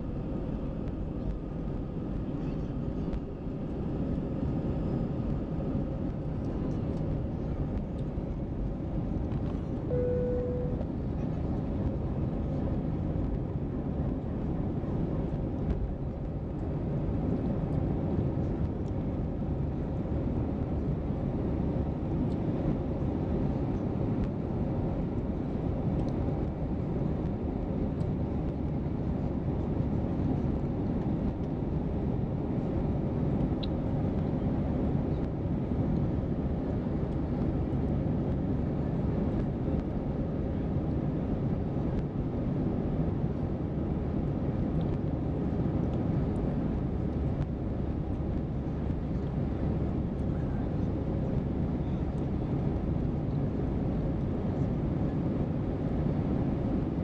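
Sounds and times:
jet engines at takeoff thrust: 0:00.0 - 0:57.0
short beep: 0:09.9 - 0:10.9.

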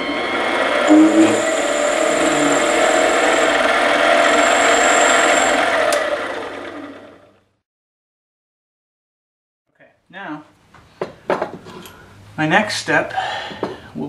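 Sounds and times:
metal lathe whining: 0:00.0 - 0:07.3.

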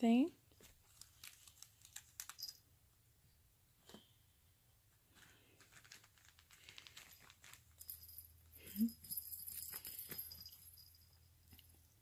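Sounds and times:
kitten rustling and tapping toys: 0:00.5 - 0:02.7, 0:05.1 - 0:12.0.

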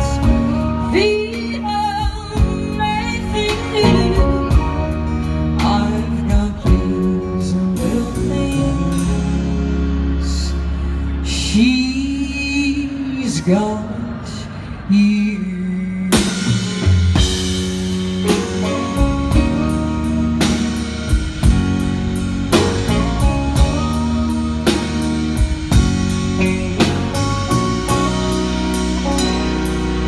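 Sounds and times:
woman singing country music: 0:00.0 - 0:16.6, 0:18.3 - 0:21.5, 0:22.6 - 0:27.2
guitar: 0:00.0 - 0:30.0
drum kit beat: 0:16.1 - 0:30.0.

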